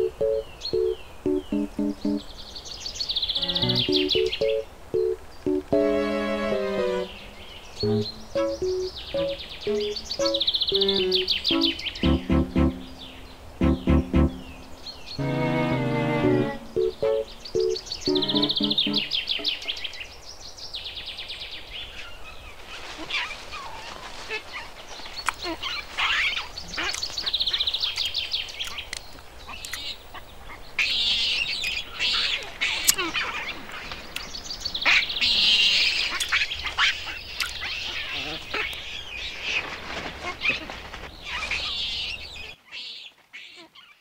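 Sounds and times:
birds chattering trills: 0.0s - 5.8s, 6.5s - 15.2s, 16.2s - 20.0s
birds chirping: 0.0s - 22.5s.

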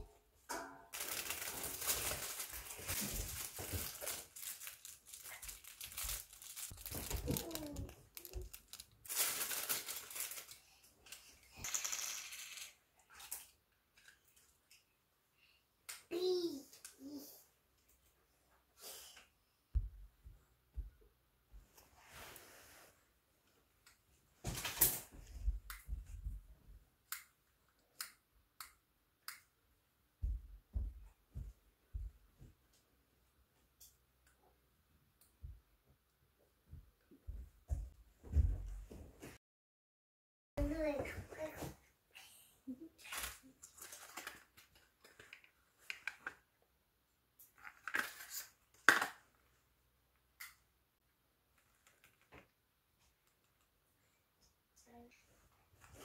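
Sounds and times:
plastic toy rustle: 0.9s - 13.4s, 43.0s - 46.4s, 47.5s - 49.3s, 51.5s - 52.5s.

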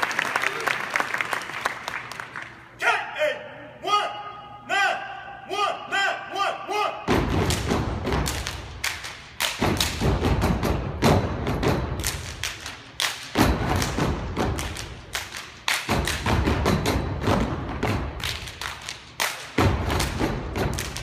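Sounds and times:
team stomping and clapping: 7.1s - 21.0s.

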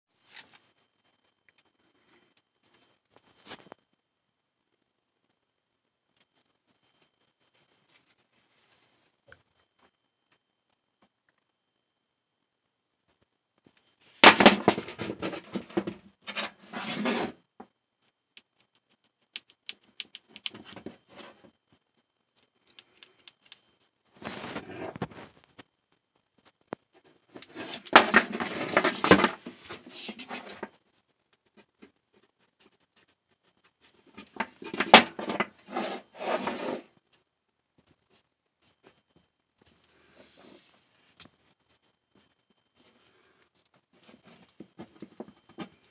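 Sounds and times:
rubber hose rubbing and scraping: 14.2s - 17.4s, 27.4s - 30.7s, 34.0s - 36.9s.

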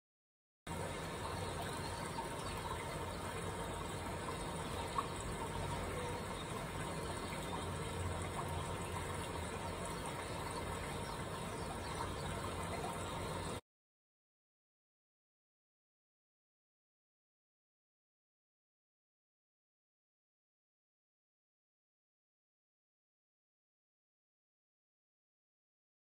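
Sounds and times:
faint low hum: 0.7s - 13.6s.

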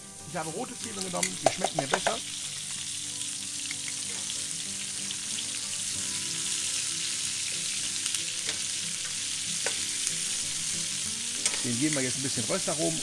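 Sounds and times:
onions sizzling in hot fat: 0.0s - 13.0s
metal tongs ticking on pan: 1.0s - 2.2s, 11.4s - 12.1s.

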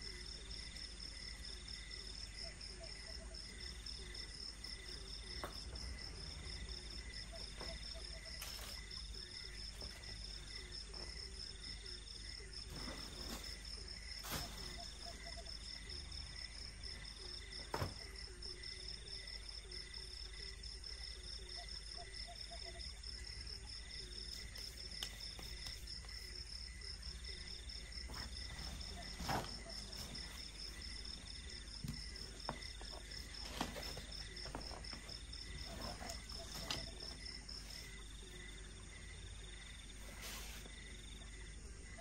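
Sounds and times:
cricket chirping: 0.0s - 42.0s
knocks and rustles of gear: 31.8s - 37.2s.

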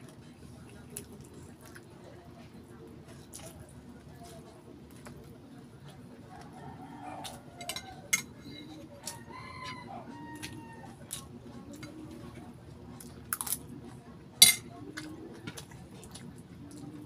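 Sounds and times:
crunching crispy food: 12.9s - 14.0s.

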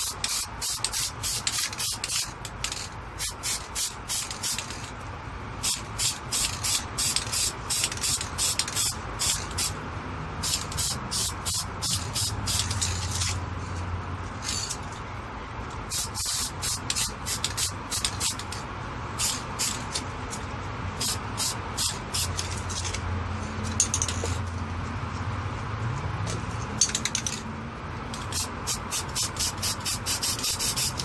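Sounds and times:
spray paint can hissing: 0.0s - 4.9s, 5.6s - 9.8s, 10.4s - 13.2s, 15.9s - 18.6s, 19.2s - 20.0s, 21.0s - 22.5s, 28.2s - 31.0s.

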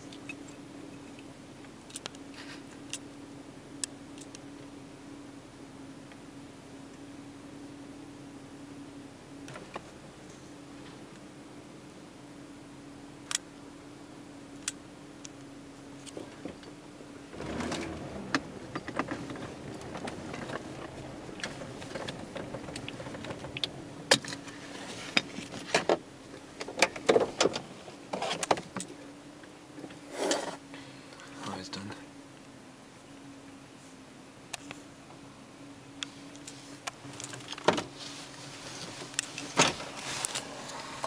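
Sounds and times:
vehicle engine hum: 0.0s - 41.0s
gravel crunching under tyres: 17.3s - 29.0s, 36.0s - 41.0s.

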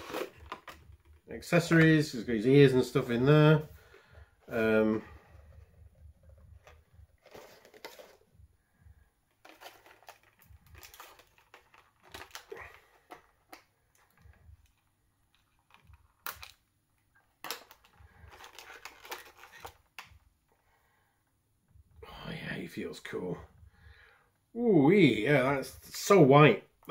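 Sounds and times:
plastic packaging crinkling: 0.0s - 1.2s, 6.6s - 8.3s, 9.3s - 16.6s, 17.3s - 20.1s.

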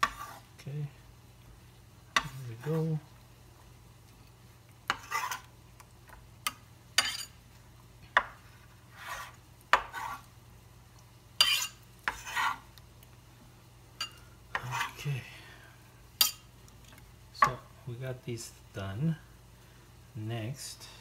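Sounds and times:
blade scraping across board: 0.0s - 0.5s, 4.9s - 5.5s, 8.9s - 10.3s, 11.4s - 12.6s.

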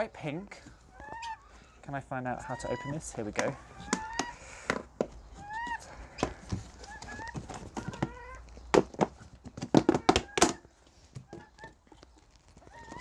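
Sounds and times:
hen calling: 0.0s - 8.6s.

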